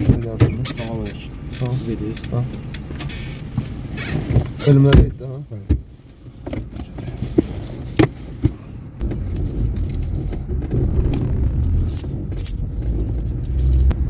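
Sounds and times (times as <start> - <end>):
car interior rumble: 0.0 - 14.0
coins clinking in a hand: 11.6 - 14.0.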